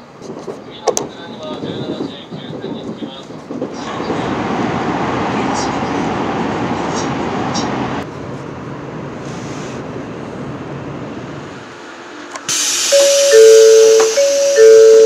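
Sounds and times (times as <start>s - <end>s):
train running noise inside cabin: 0.0s - 15.0s
bright hiss: 12.5s - 15.0s
two-note chime melody: 12.9s - 15.0s.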